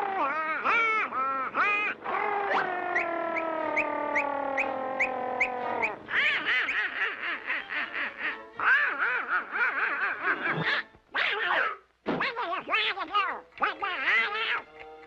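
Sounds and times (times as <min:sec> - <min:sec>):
squawking cartoon duck voice: 0:00.0 - 0:14.8.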